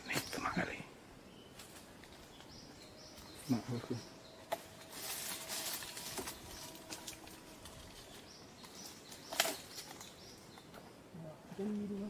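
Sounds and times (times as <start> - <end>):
leaves and stems rustling: 1.4 - 12.0
twigs snapping: 4.4 - 10.8.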